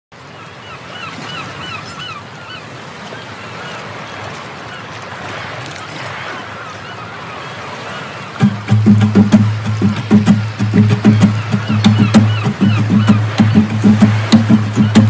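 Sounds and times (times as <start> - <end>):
birds honking: 0.3 - 15.0
steady rushing noise: 8.4 - 15.0.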